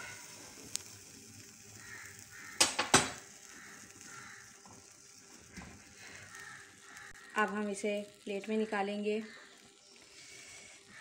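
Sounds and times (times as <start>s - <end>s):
hot griddle hissing: 0.0s - 11.0s
metal tongs striking iron griddle: 2.6s - 3.2s.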